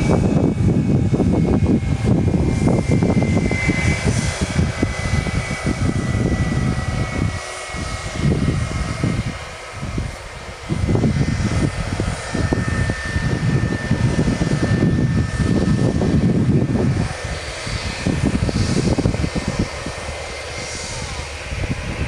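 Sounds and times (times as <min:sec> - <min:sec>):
jet engines rumbling: 0:00.0 - 0:22.0
thin steady whine: 0:00.0 - 0:22.0.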